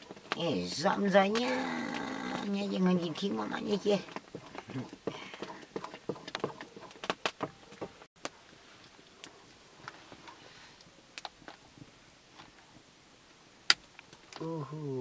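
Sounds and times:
wood fire crackling: 0:00.0 - 0:14.5.

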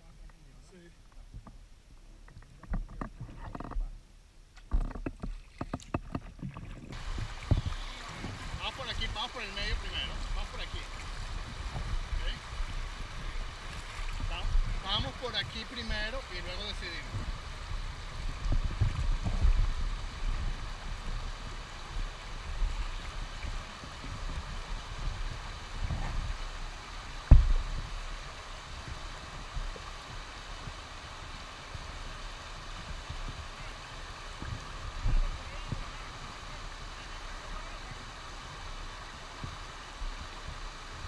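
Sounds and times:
paddle splashing water: 0:04.6 - 0:41.0
fast-flowing water rushing: 0:06.1 - 0:41.0
heavy thump: 0:27.2 - 0:27.8
heavy low thuds: 0:27.2 - 0:28.0.

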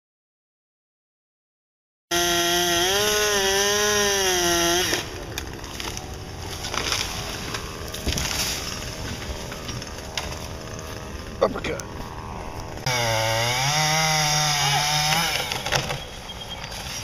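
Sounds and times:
chainsaw running at high revs: 0:02.1 - 0:05.1, 0:12.8 - 0:15.7.

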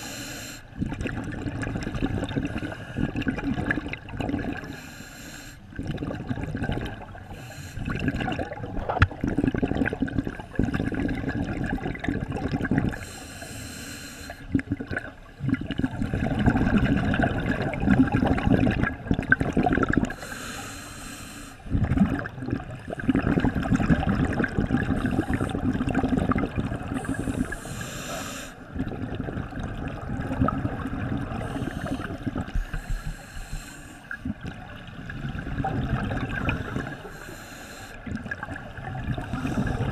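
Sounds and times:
regulator inhalation hiss: 0:00.0 - 0:00.7, 0:04.7 - 0:05.6, 0:07.3 - 0:07.9, 0:13.0 - 0:14.5, 0:20.1 - 0:21.7, 0:27.0 - 0:28.7, 0:31.4 - 0:34.1, 0:36.6 - 0:38.0
gurgling exhaled bubbles: 0:00.7 - 0:04.8, 0:05.7 - 0:13.1, 0:14.5 - 0:20.4, 0:21.7 - 0:37.3, 0:38.0 - 0:39.9.

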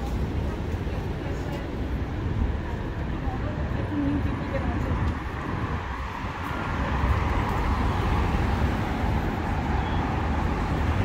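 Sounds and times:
cars driving past: 0:04.1 - 0:11.0.

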